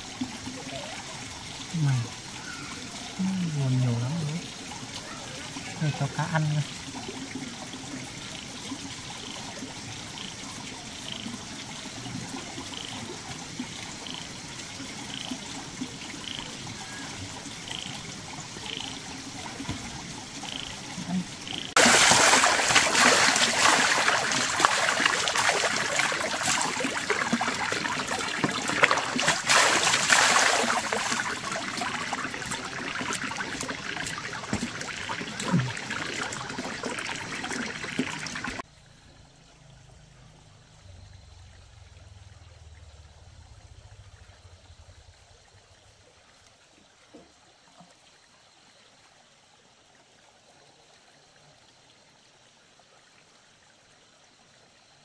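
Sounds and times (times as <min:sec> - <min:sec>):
water splashing and trickling: 0:00.0 - 0:55.0.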